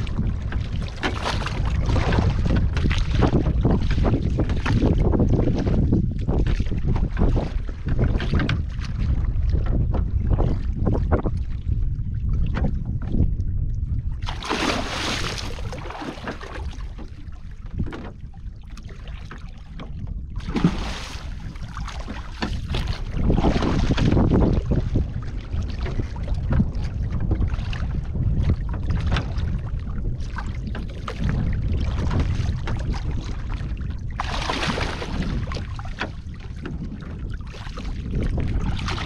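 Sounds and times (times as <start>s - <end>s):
wind rumbling on microphone: 0.0s - 39.0s
fish splashing at the surface: 14.2s - 16.7s, 20.4s - 21.4s.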